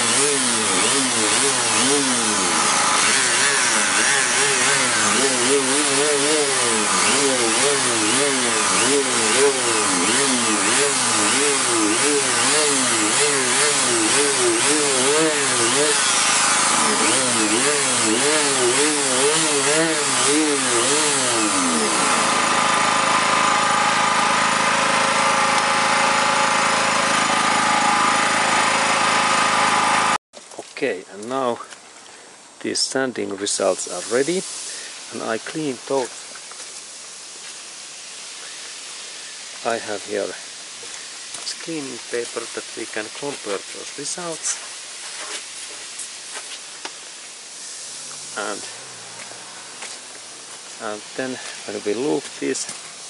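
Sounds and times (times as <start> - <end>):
orbital sander motor hum: 0.0 - 30.2.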